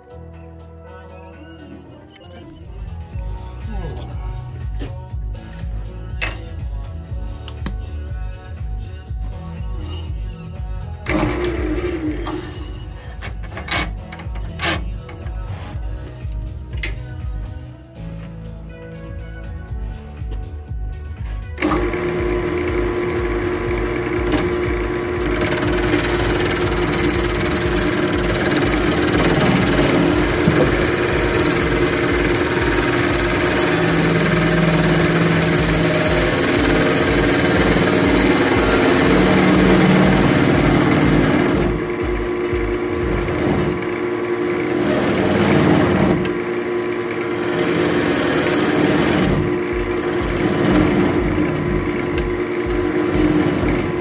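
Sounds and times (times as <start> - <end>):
wood lathe humming: 21.6 - 54.0
turning tool scraping wood: 23.9 - 41.9, 47.2 - 52.3.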